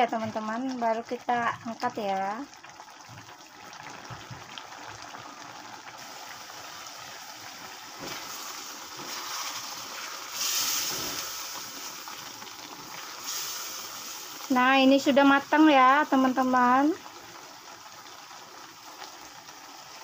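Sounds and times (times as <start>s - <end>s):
sauce bubbling in a wok: 0.0s - 20.0s
spatula stirring and scraping: 8.0s - 12.0s.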